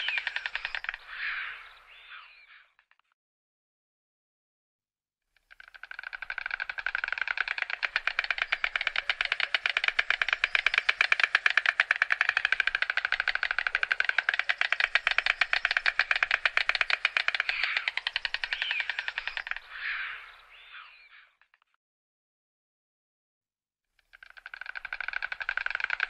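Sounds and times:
stork bill clattering: 0:00.0 - 0:01.0, 0:05.5 - 0:19.6, 0:24.1 - 0:26.0.

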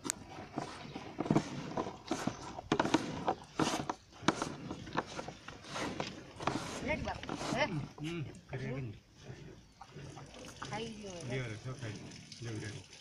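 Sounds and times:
milk squirting into steel bucket: 0:09.4 - 0:13.0.

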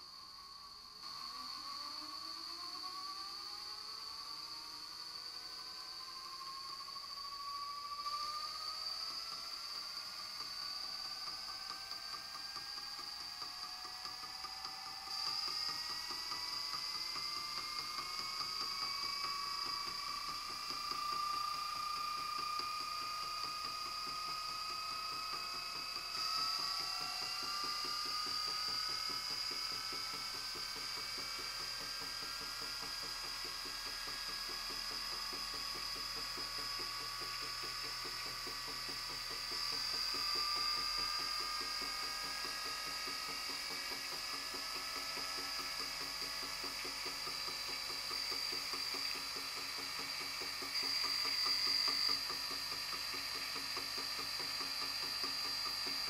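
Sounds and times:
electric motor whine: 0:00.0 - 0:56.0
fast mechanical ticking: 0:09.0 - 0:56.0.

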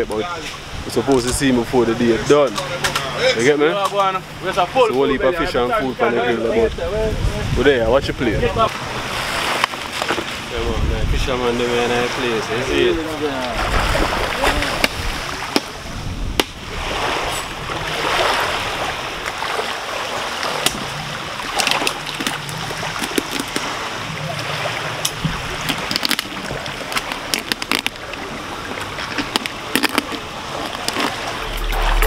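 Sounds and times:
small waves washing onto shore: 0:06.6 - 0:32.0.

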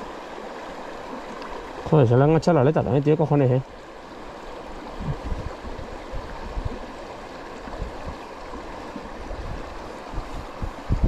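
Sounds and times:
river water gurgling: 0:00.0 - 0:11.0.

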